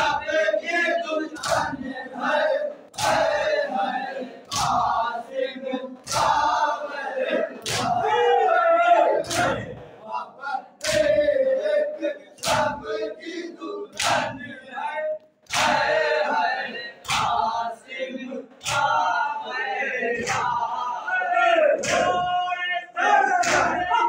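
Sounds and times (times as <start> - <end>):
men chanting in unison: 0.0 - 24.0
unison chest slaps: 4.5 - 4.9, 7.6 - 8.0, 9.3 - 9.6, 10.8 - 11.2, 21.8 - 22.2, 23.4 - 23.8.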